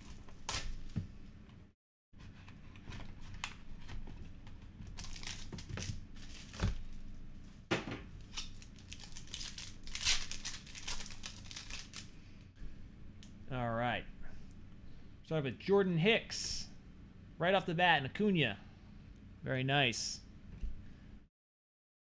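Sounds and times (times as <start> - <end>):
plastic wrapping crinkling and tearing: 4.8 - 6.9, 8.2 - 12.2.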